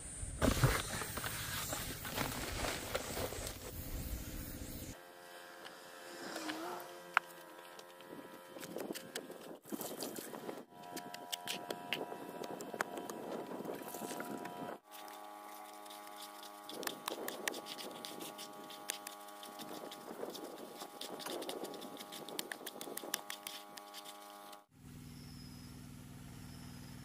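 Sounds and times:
steady hum: 0.0s - 27.0s
wet mortar squelching: 14.9s - 24.6s.

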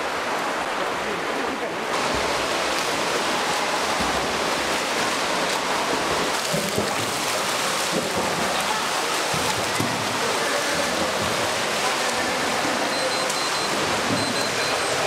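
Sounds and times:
pool water splashing: 0.0s - 15.0s.

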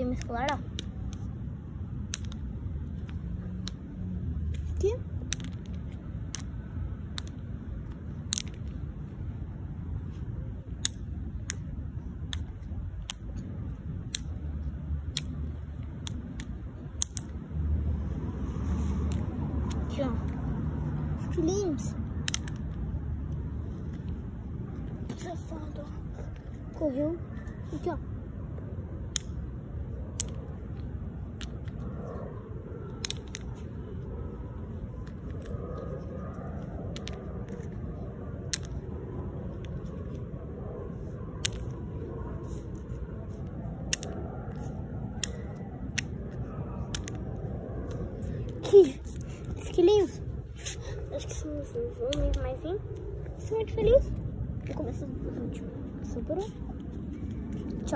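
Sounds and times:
sharp irregular clicks: 0.0s - 9.1s, 10.6s - 17.7s, 19.0s - 24.9s, 29.0s - 32.2s, 32.8s - 40.4s, 42.6s - 51.3s, 52.0s - 55.0s
wind rumbling on microphone: 0.0s - 57.9s.

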